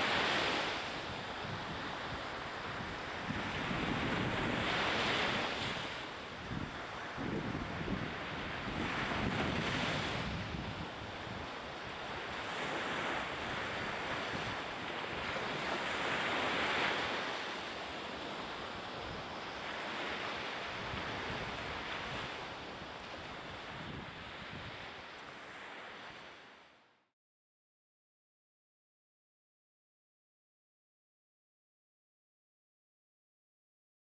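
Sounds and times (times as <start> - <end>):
sea surf washing in: 0.0 - 26.8.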